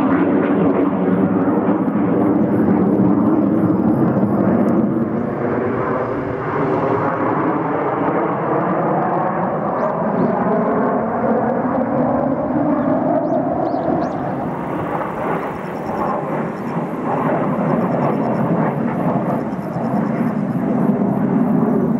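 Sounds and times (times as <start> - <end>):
jet engines flying overhead: 0.0 - 21.9.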